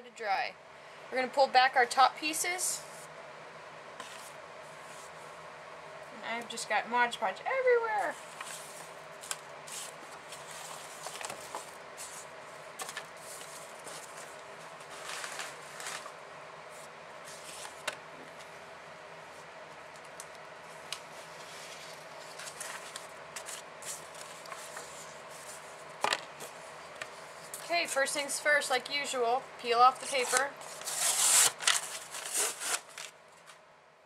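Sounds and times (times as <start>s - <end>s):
faint steady hum: 0.0s - 34.0s
paper rustling: 8.0s - 17.9s, 21.3s - 27.6s, 30.0s - 33.6s.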